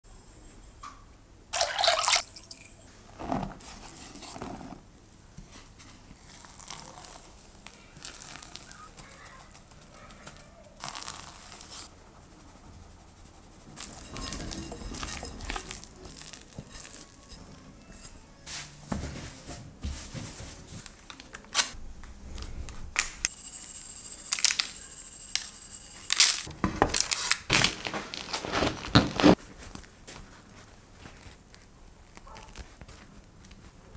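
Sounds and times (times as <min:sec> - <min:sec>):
dough rustling and scraping: 0:02.8 - 0:21.1, 0:26.0 - 0:33.9
parchment paper crinkling: 0:03.2 - 0:12.0, 0:13.6 - 0:18.3, 0:26.1 - 0:33.9.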